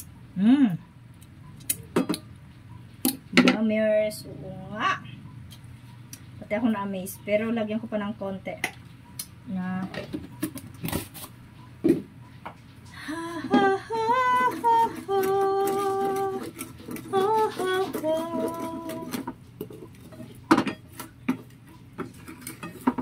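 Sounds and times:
woman humming a tune: 0.4s - 0.8s, 13.0s - 19.2s.

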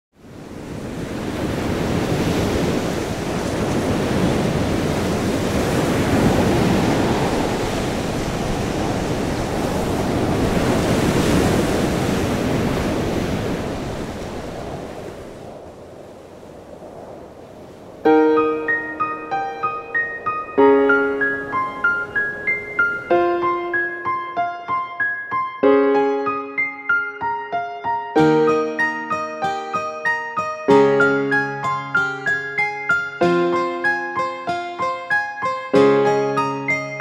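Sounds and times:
ocean waves washing in: 0.2s - 37.0s
piano music: 18.0s - 37.0s.

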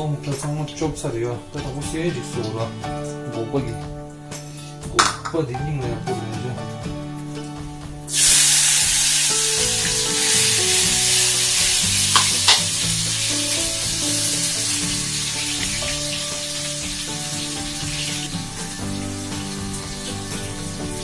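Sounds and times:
background music: 0.0s - 21.0s
food sizzling in frying pan: 7.2s - 21.0s.

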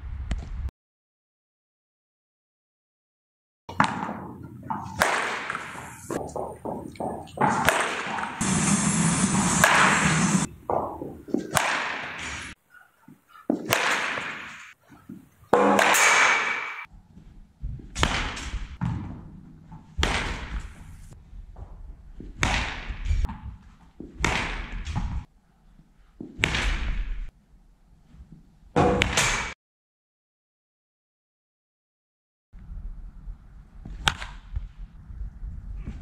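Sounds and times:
baseball bat cracking balls: 3.7s - 8.5s, 9.1s - 16.9s, 17.9s - 25.3s.

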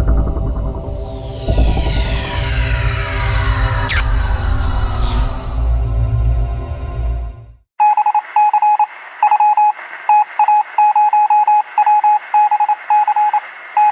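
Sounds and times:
deep rumbling logo sting: 0.0s - 7.6s
short electronic typing beeps: 7.8s - 13.9s.

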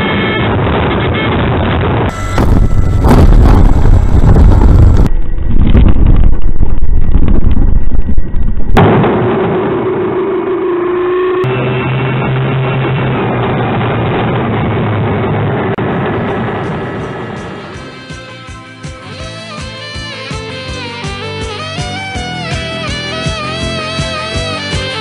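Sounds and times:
wind buffeting: 1.6s - 8.8s
model aircraft engine and propeller: 2.1s - 5.1s.

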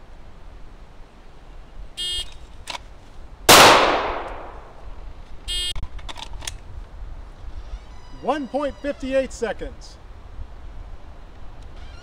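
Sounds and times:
pistol shot: 3.5s - 4.8s.

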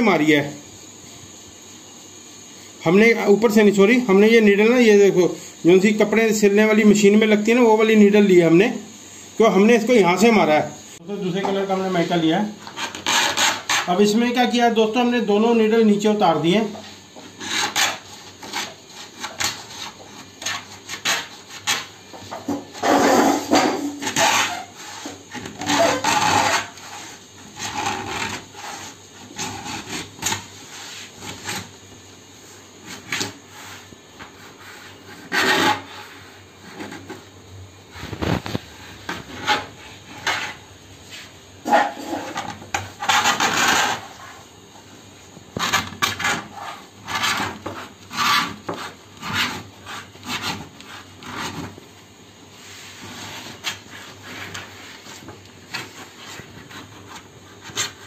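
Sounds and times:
cutter scraping laminate sheet: 12.6s - 13.9s, 17.2s - 30.5s, 35.1s - 36.1s, 41.6s - 44.4s, 45.6s - 51.8s.

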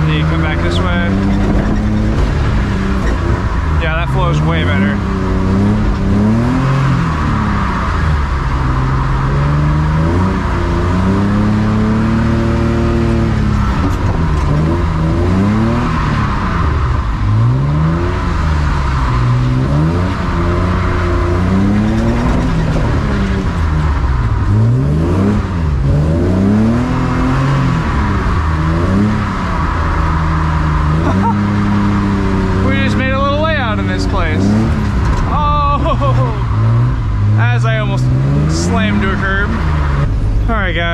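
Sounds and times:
car engine revving: 0.0s - 40.9s.

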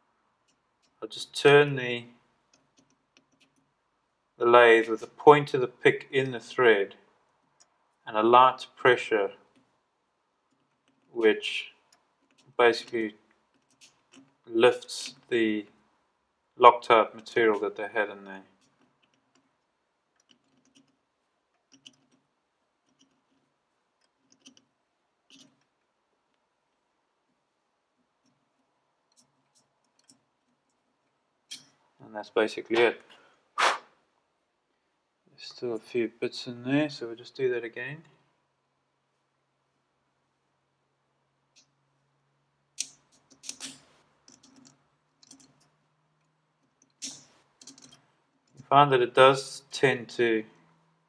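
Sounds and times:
steel pick clicking and scraping: 11.8s - 15.3s, 18.5s - 24.7s, 25.3s - 25.8s, 28.2s - 30.9s, 31.5s - 31.8s, 42.8s - 48.6s
pick scraping metal threads: 42.8s - 45.8s, 46.6s - 48.7s.

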